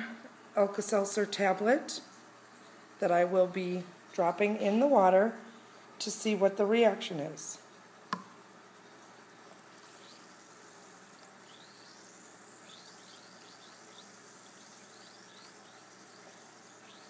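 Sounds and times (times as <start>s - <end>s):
tablet fizzing in water: 9.5s - 17.0s.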